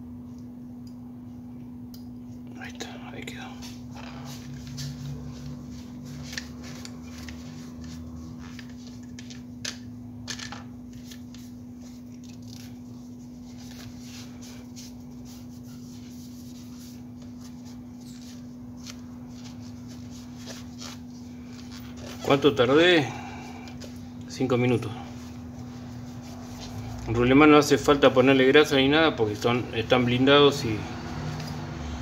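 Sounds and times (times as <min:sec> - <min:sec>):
steady low hum: 0:00.0 - 0:32.0
cloth rubbing on plastic reel: 0:04.1 - 0:09.4, 0:10.9 - 0:23.0.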